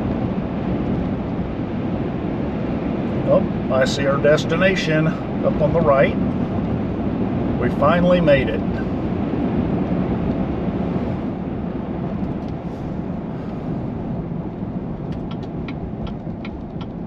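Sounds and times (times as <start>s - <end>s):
car road and engine noise: 0.0s - 17.0s
turn signal clicking: 15.0s - 17.0s.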